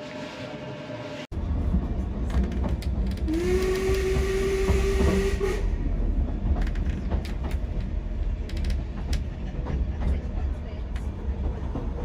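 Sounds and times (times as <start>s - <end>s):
train rumble with wheel clicks: 1.3s - 12.0s
steam locomotive whistle: 3.3s - 5.9s.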